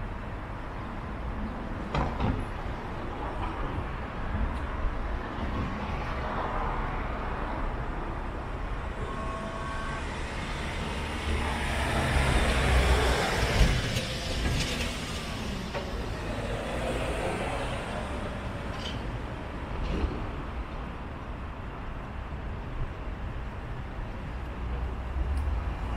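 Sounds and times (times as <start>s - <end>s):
low traffic rumble: 0.0s - 25.9s
vehicle passing close by: 10.2s - 18.6s.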